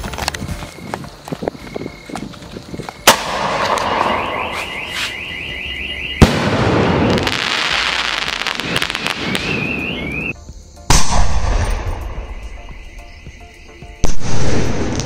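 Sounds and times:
firework bursting bang: 3.0 - 4.6, 6.2 - 9.5
small firework crackles: 7.1 - 9.7.

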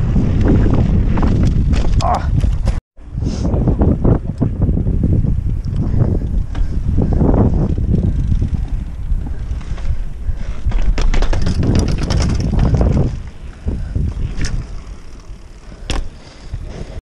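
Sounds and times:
wind buffeting microphone: 0.0 - 17.0
bike tyres rolling over paving: 4.4 - 17.0
sharp rattling clicks from bike: 5.6 - 13.3, 14.0 - 16.5.

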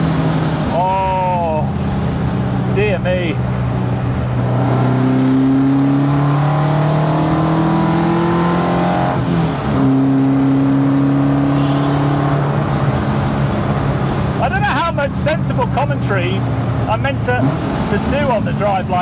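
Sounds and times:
car engine revving: 0.0 - 19.0.

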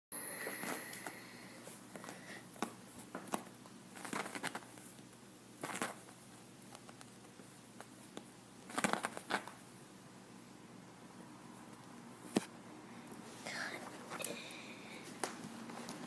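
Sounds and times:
rabbit scratching fabric cushion: 1.7 - 9.8.

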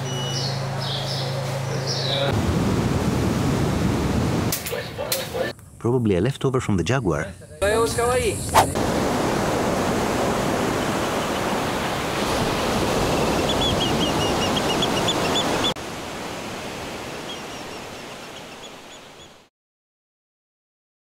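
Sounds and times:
rushing water: 8.7 - 19.5.

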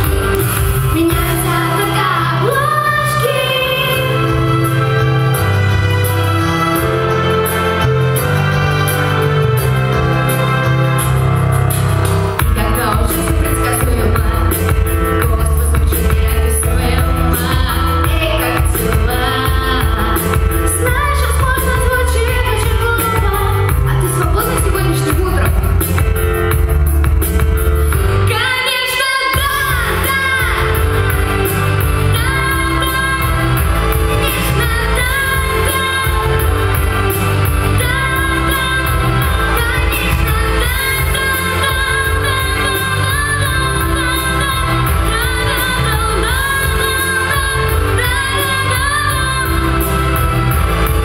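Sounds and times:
pop backing track: 0.0 - 51.0.

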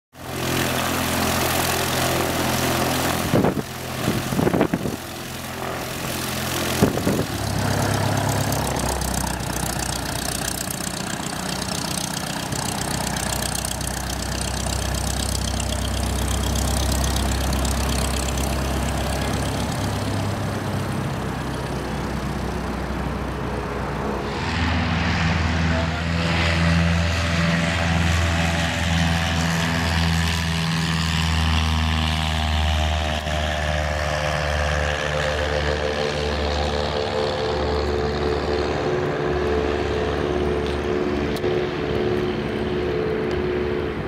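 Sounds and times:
airplane engine and propeller: 0.1 - 44.0
wind buffeting microphone: 2.2 - 9.8.

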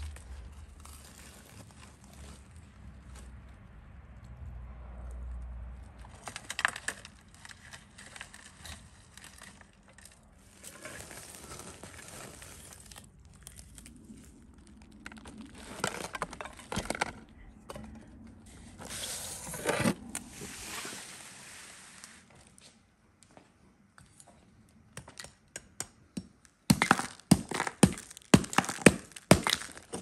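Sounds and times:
ash and baked clay crunching: 0.0 - 3.9, 5.7 - 18.9, 25.0 - 30.0
sharp knocks and crackles: 25.0 - 30.0.

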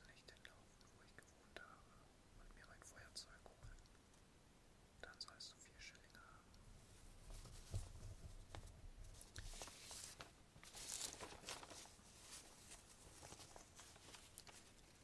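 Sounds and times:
faint soft clicks: 0.0 - 1.6, 2.6 - 4.3
person whispering: 0.0 - 3.9, 5.0 - 6.6.

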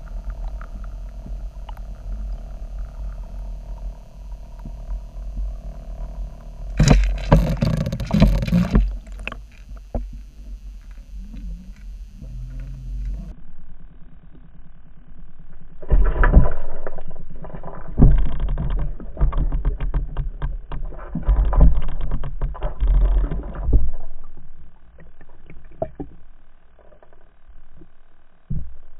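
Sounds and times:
muffled underwater thuds: 0.0 - 10.6.

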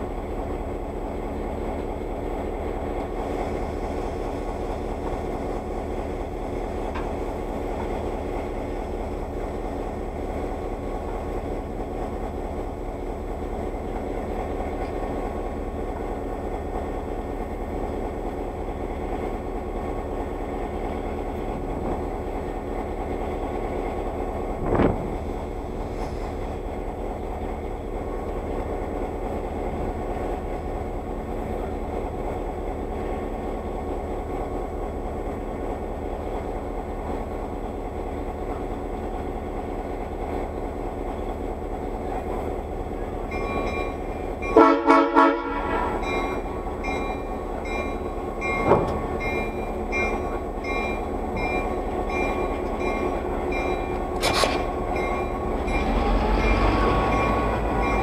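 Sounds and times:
diesel locomotive engine running: 0.0 - 58.0
loud train horn: 44.5 - 46.1, 55.8 - 57.9.

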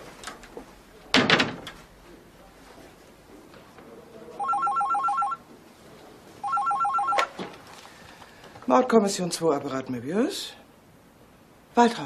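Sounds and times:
door slamming: 1.1 - 1.8
telephone ringing with warbling trill: 4.4 - 5.4, 6.4 - 7.3.

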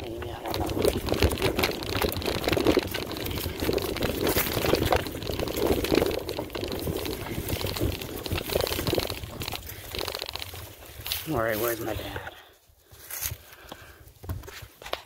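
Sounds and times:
wind buffeting microphone: 0.0 - 11.9
mountain bike rumbling and rattling: 0.0 - 15.0.

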